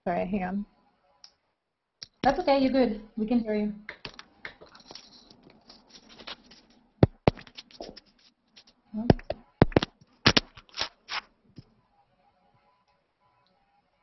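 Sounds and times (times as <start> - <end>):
headset cable knocks and scrapes: 4.0 - 11.2.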